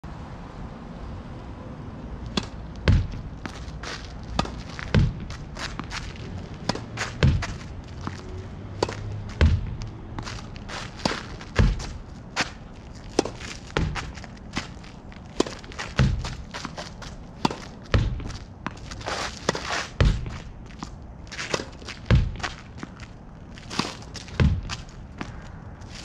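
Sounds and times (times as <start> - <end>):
ball striking wall: 2.2 - 18.8, 19.4 - 20.6, 21.5 - 22.9, 23.8 - 25.4
ball bouncing on hard court: 2.2 - 23.0, 23.7 - 25.4
racket hitting tennis ball: 2.2 - 26.0
footsteps: 2.3 - 26.0.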